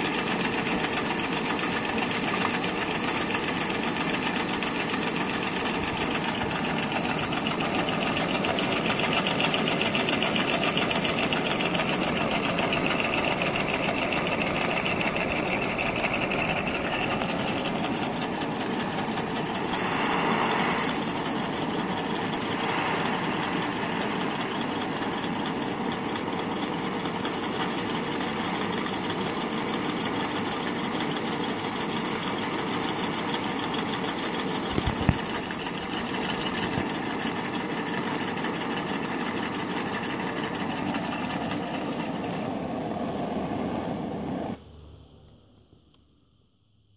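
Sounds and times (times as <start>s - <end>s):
steam engine mechanical clatter: 0.0s - 42.8s
gas torch hiss: 19.5s - 25.4s.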